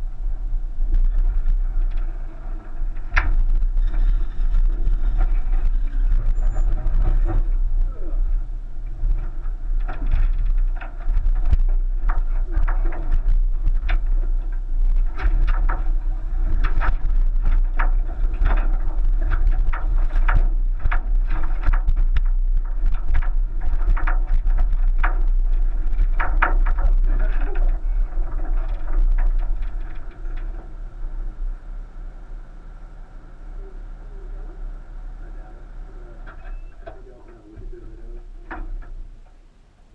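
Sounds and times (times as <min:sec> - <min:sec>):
knocks and rattles: 0:00.0 - 0:31.4
car driving on dirt track: 0:00.0 - 0:39.2.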